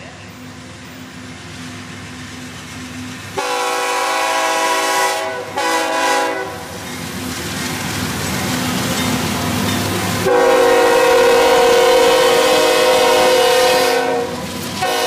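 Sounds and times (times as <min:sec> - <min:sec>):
locomotive engine rumble: 0:00.0 - 0:15.0
rail noise: 0:00.0 - 0:15.0
locomotive air horn blasts: 0:03.4 - 0:06.6, 0:10.2 - 0:15.0.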